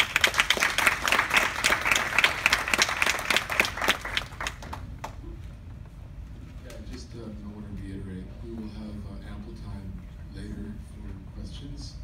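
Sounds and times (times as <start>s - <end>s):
audience applauding: 0.0s - 5.2s.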